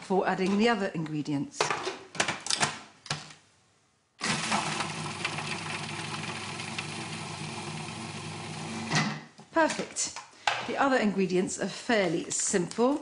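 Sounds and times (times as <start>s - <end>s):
food processor chopping: 4.2s - 9.0s.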